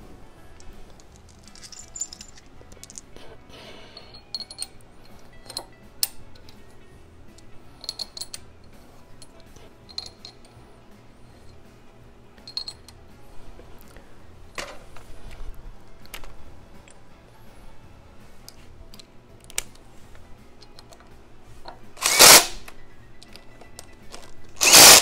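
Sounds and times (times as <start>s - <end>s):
quiet background music: 0.0s - 25.0s
metallic clinks of bolts: 0.6s - 3.1s, 4.0s - 6.6s, 7.4s - 10.6s, 12.4s - 13.0s.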